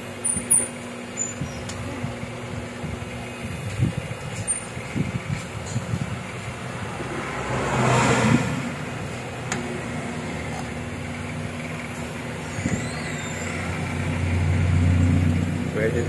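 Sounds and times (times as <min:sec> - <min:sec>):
microwave transformer and fan hum: 0:00.0 - 0:16.0.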